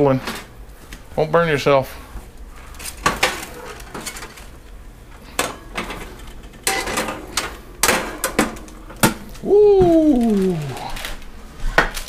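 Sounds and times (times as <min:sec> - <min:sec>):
metal tongs clinking on oven rack: 0:05.3 - 0:09.0.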